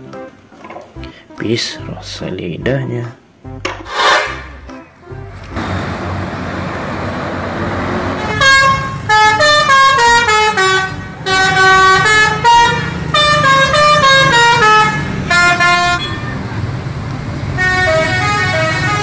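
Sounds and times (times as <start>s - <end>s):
road noise: 0.0s - 19.0s
bus engine: 3.6s - 19.0s
bus musical horn tune: 3.8s - 6.3s, 7.7s - 16.6s, 17.5s - 19.0s.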